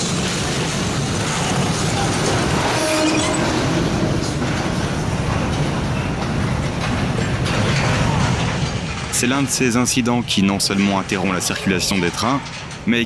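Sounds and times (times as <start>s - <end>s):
freight train rumbling past: 0.0s - 12.2s
metal grinding: 0.6s - 9.2s.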